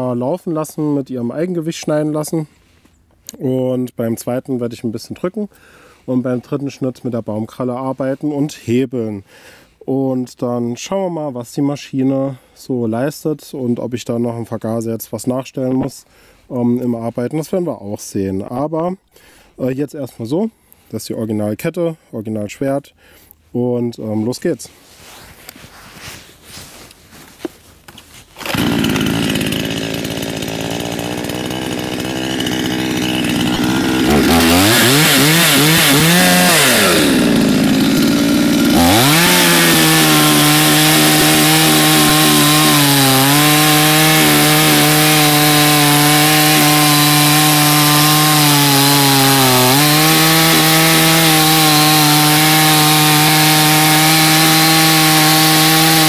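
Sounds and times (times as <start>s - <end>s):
chainsaw cutting log: 28.3s - 56.0s
chainsaw running and revving: 28.4s - 56.0s.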